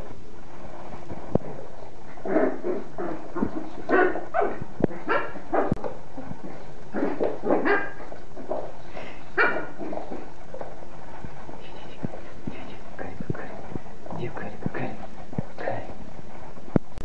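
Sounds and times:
small dog barking: 3.9 - 5.8, 7.6 - 8.0, 9.4 - 9.7.

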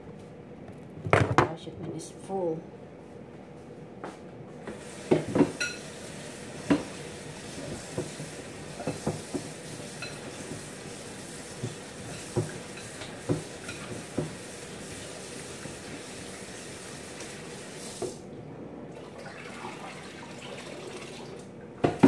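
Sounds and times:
pots and utensils clattering: 4.8 - 6.0, 6.6 - 14.4.

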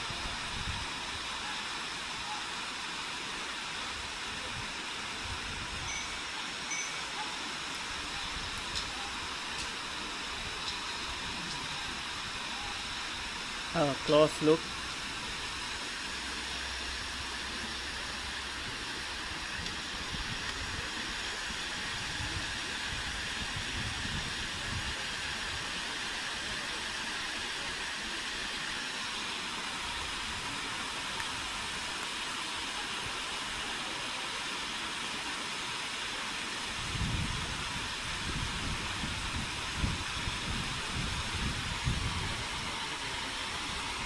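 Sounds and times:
river water rushing over rocks: 0.0 - 44.0.

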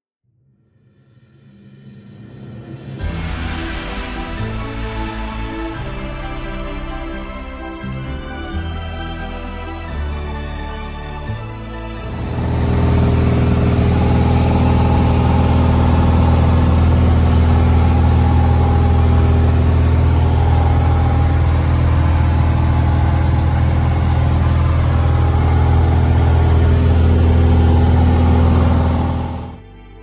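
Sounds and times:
light aircraft engine drone: 12.0 - 29.8.

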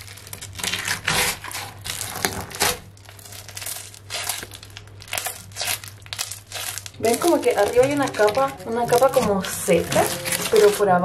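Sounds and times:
slime crackling and squelching: 0.0 - 11.0.

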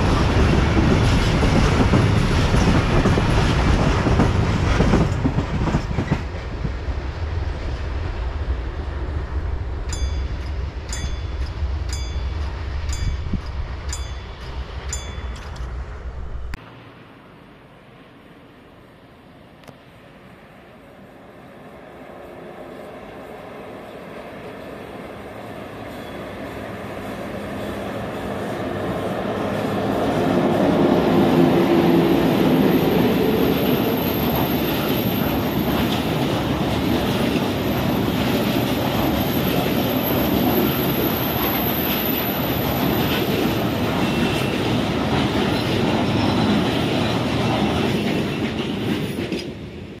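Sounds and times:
locomotive passing: 0.0 - 50.0
wagon wheels clattering on rail: 32.3 - 49.7.

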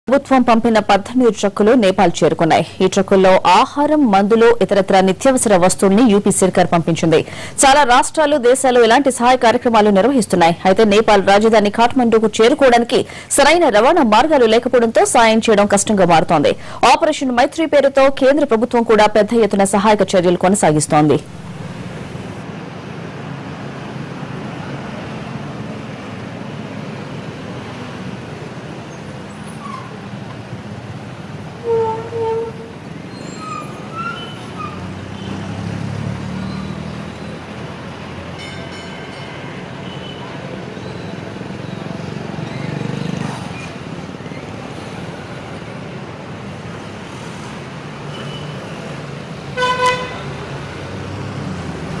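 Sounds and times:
road noise hum: 0.0 - 52.0
street traffic: 0.0 - 52.0
truck engine running: 21.2 - 22.4
vehicle passing: 21.2 - 25.4, 33.7 - 38.4, 41.3 - 44.2, 49.3 - 52.0
vehicle horn honking: 31.6 - 32.7, 49.6 - 50.4.

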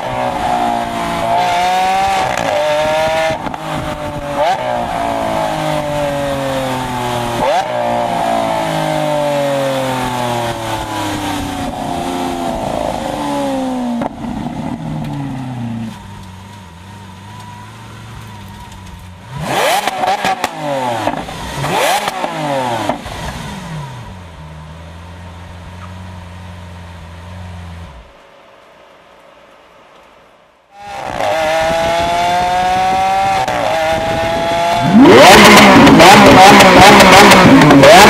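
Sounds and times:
sports car engine revving: 0.0 - 16.5, 19.2 - 26.6, 30.8 - 38.0
engine throttle blips: 30.8 - 38.0.

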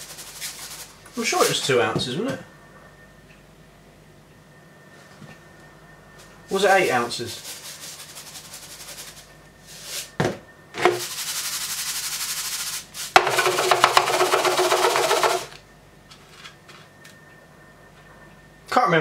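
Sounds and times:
sugar pouring into plastic bowl: 11.0 - 15.5.

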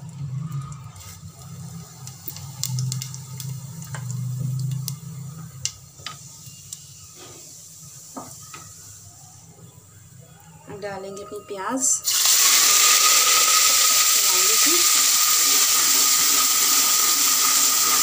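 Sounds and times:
seeds sizzling in hot oil: 0.2 - 10.4, 12.0 - 18.0
sharp crackles and pops: 1.0 - 7.2.

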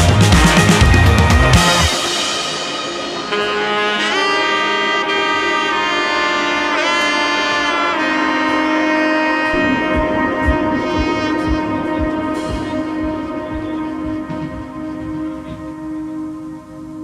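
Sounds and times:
steady low drum beat: 0.0 - 2.8, 9.5 - 16.4
melody of long held notes: 0.0 - 17.0.

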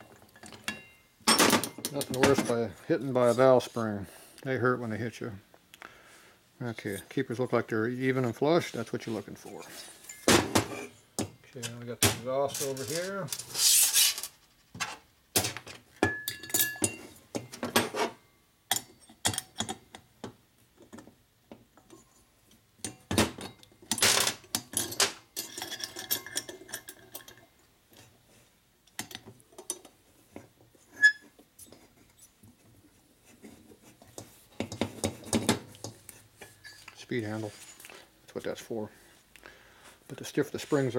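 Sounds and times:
metal tools clicking and clinking: 0.2 - 2.5, 15.4 - 18.0, 22.8 - 27.5.

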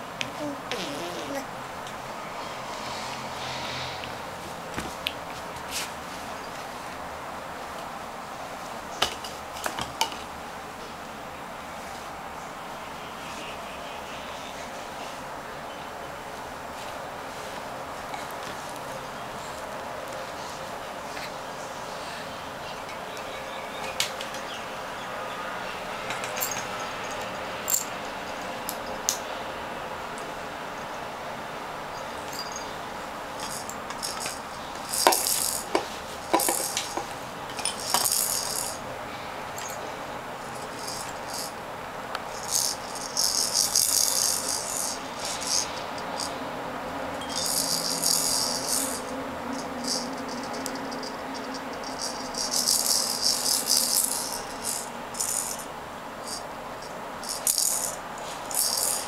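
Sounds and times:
plastic rattle toys shaken: 33.4 - 38.8, 40.5 - 41.6, 42.3 - 46.3, 47.2 - 56.4, 57.2 - 59.0.

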